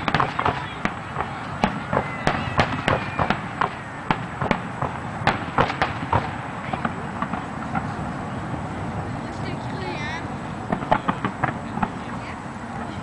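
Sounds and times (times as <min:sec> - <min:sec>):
faint fireworks pops: 0:00.0 - 0:10.0, 0:10.6 - 0:13.0
fireworks bangs: 0:00.0 - 0:13.0.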